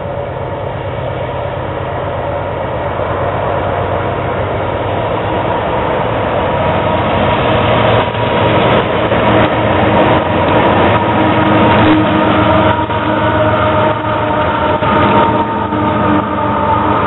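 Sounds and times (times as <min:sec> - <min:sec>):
diesel locomotive engines droning: 0:00.0 - 0:17.0.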